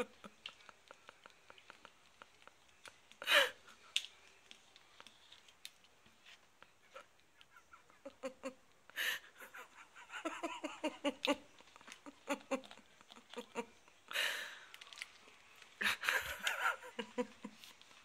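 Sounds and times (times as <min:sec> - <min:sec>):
person laughing: 0:06.9 - 0:13.8, 0:15.8 - 0:17.7.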